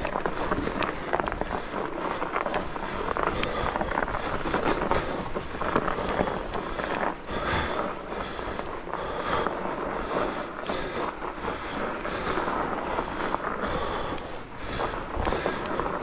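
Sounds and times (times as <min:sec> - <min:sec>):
bike clicks and rattles: 0:00.0 - 0:16.0
tyres crunching through snow: 0:00.0 - 0:16.0.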